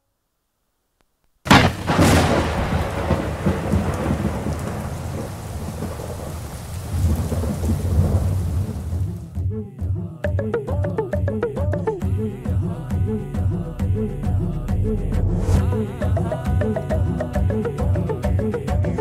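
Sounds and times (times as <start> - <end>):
rumbling thunder: 1.5 - 9.2, 13.4 - 16.0
thunder crack: 1.5 - 9.2, 13.4 - 16.0
steady rain: 1.5 - 9.4.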